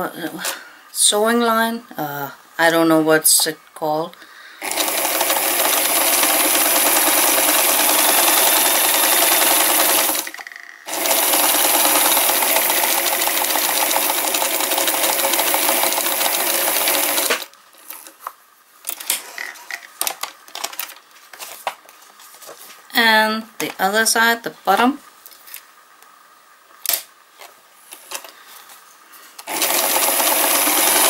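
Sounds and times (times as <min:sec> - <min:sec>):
sewing machine stitching: 0:04.6 - 0:17.5, 0:29.5 - 0:31.0.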